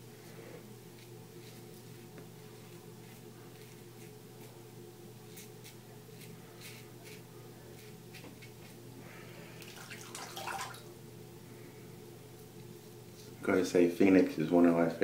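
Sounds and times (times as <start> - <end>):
steady low hum: 0.0 - 15.0
razor scraping stubble: 5.3 - 7.2
water splashing: 9.6 - 10.9.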